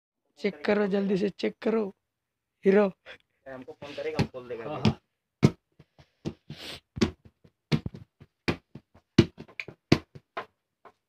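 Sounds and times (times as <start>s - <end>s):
football thumping on hard floor: 4.2s - 10.6s.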